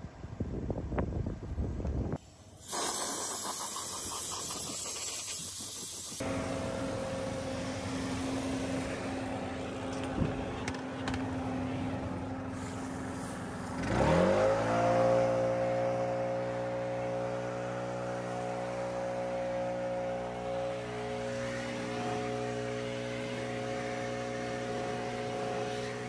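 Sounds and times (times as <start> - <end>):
engine running and revving: 6.2 - 26.0.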